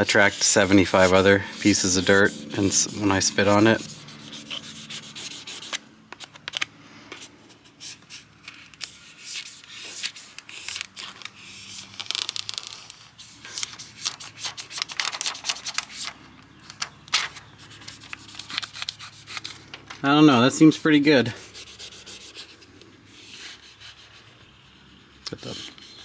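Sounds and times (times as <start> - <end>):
plastic card scraping film: 5.6 - 20.0
plastic liner crinkling: 10.3 - 15.9.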